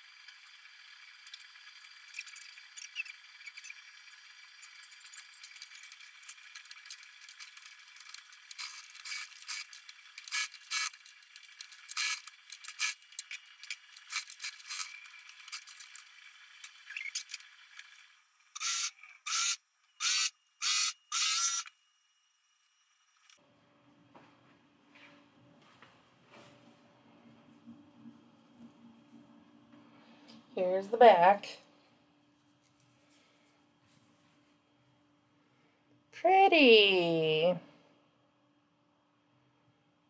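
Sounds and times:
small clicks and scrapes: 0:01.2 - 0:21.8.

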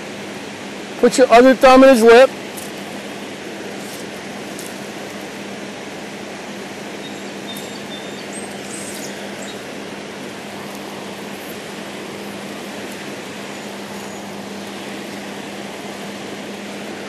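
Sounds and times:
river rushing over rocks: 0:00.0 - 0:17.0
faint high chirps: 0:07.0 - 0:09.7.

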